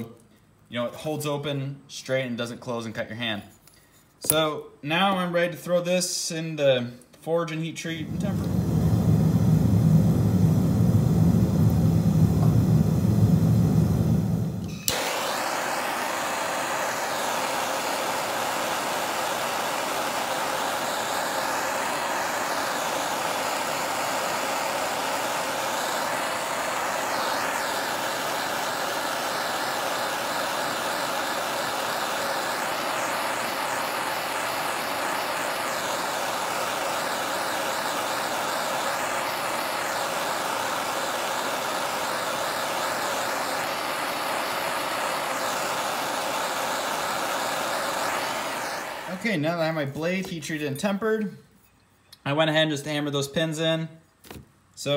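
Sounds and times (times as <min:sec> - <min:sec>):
propane torch hissing: 0:07.9 - 0:50.0.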